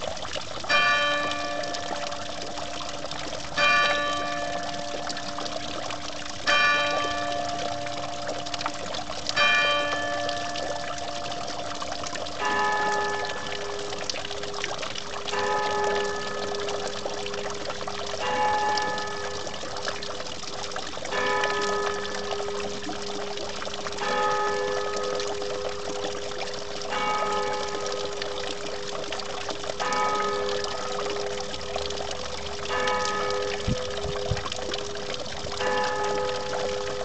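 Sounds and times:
fountain water splashing on rocks: 0:00.0 - 0:37.0
church bells ringing: 0:00.7 - 0:02.3, 0:03.6 - 0:05.3, 0:06.4 - 0:08.4, 0:09.4 - 0:11.4, 0:12.4 - 0:13.9, 0:15.3 - 0:16.6, 0:18.2 - 0:19.5, 0:21.1 - 0:22.4, 0:24.0 - 0:25.9, 0:26.9 - 0:28.0, 0:32.7 - 0:34.0, 0:35.6 - 0:37.0.

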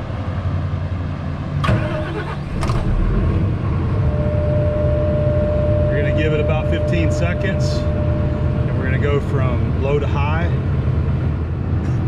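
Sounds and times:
diesel generator engine running: 0:00.0 - 0:12.0
steady whine: 0:01.6 - 0:12.0.

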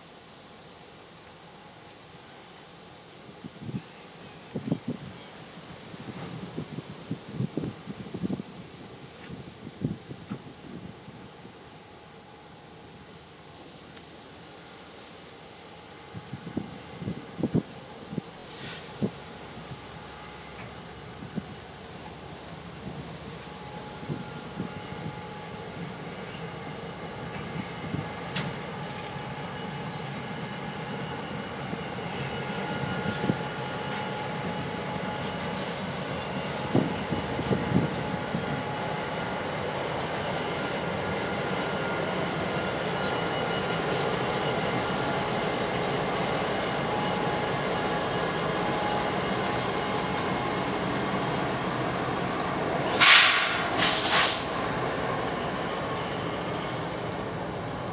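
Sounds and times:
train rumble: 0:00.0 - 0:57.9
train wheels squealing: 0:00.8 - 0:57.9
short loud noise bursts: 0:52.9 - 0:54.5.

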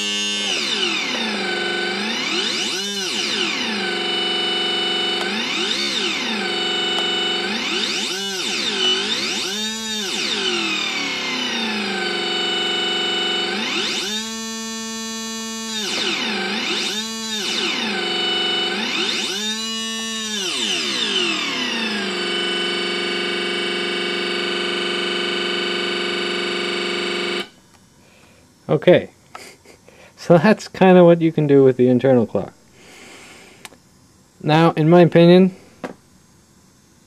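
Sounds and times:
buzzy synthesizer tone: 0:00.0 - 0:27.6
steady high whine: 0:00.0 - 0:37.0.

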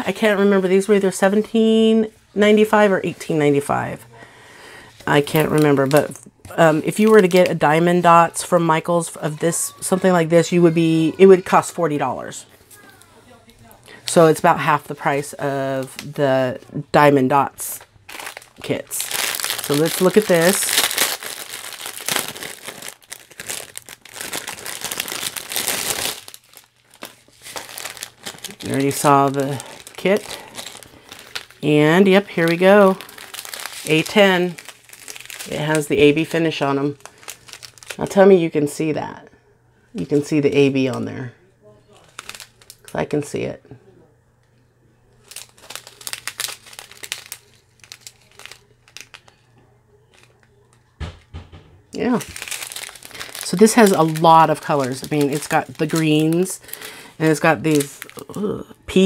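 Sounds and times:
plastic packaging crinkling: 0:04.8 - 0:11.6, 0:12.5 - 0:38.4, 0:41.9 - 0:43.2, 0:45.1 - 0:51.3, 0:52.0 - 0:59.0.

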